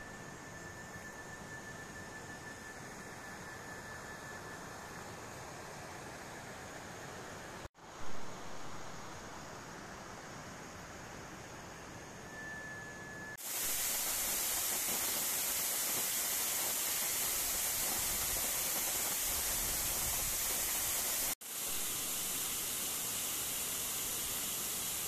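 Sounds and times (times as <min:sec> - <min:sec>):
waterfall hissing: 0:13.4 - 0:25.0.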